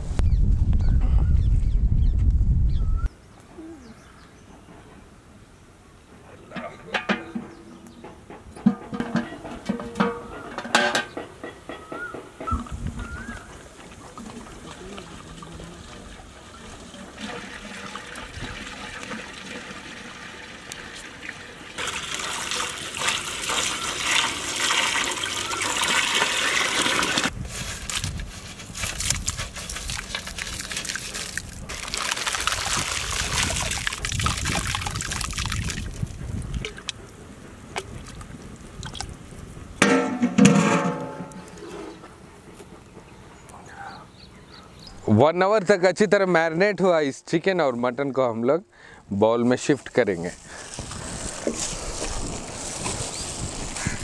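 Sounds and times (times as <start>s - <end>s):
water pouring into metal pot: 16.8s - 27.3s, 30.1s - 36.0s.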